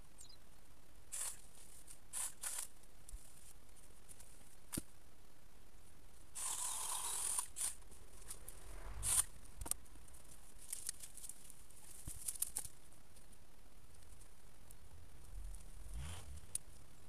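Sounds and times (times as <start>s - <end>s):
branches rustling and crackling: 1.0s - 17.0s
sharp twig crack: 2.1s - 3.2s, 10.6s - 12.8s.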